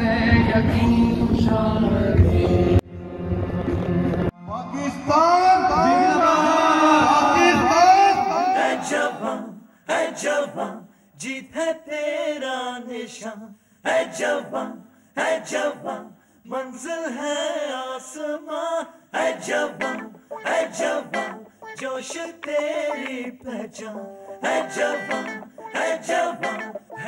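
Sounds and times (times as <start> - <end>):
group singing unaccompanied: 0.0 - 2.8, 5.8 - 27.0.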